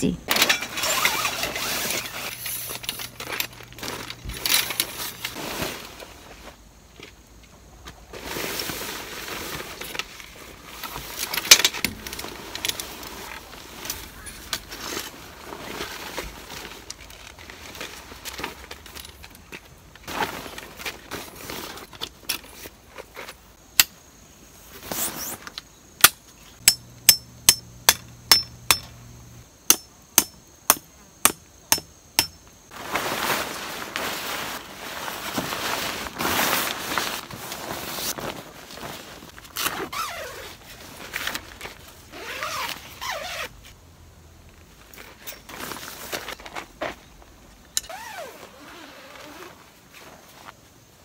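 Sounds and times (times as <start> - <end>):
rustling and scraping: 0.3 - 23.6, 24.6 - 25.6, 32.6 - 43.8, 44.5 - 50.7
hammer striking metal tent pegs: 26.0 - 29.0, 29.7 - 32.4.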